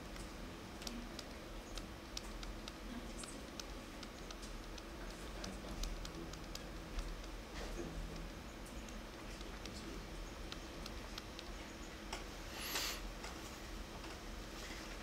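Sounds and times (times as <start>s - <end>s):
low room hum: 0.0s - 15.0s
stylus tapping on tablet screen: 0.8s - 7.4s.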